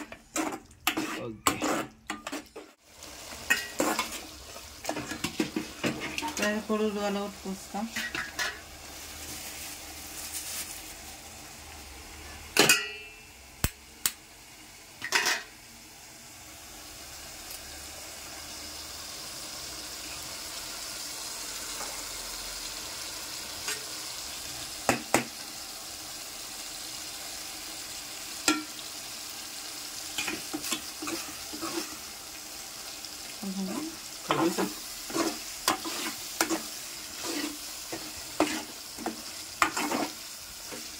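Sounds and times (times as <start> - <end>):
gravy sizzling in a pot: 0.0 - 40.9.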